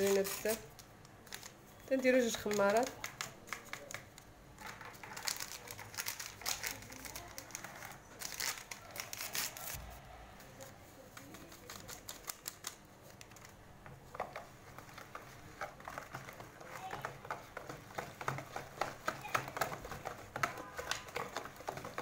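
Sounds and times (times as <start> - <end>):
paper sachets crinkling: 0.0 - 4.0, 4.6 - 9.8, 11.0 - 13.6.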